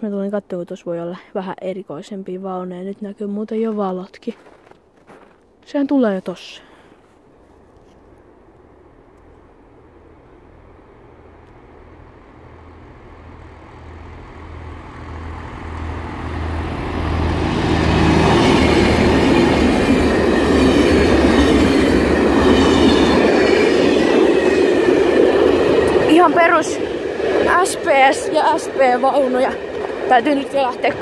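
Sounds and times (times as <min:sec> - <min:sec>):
train passing: 0:06.4 - 0:31.0
wheels rattling on rails: 0:09.2 - 0:31.0.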